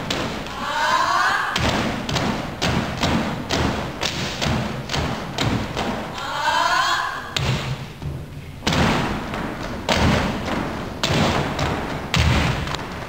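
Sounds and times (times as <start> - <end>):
boots stomping on wooden stage: 7.4 - 13.0.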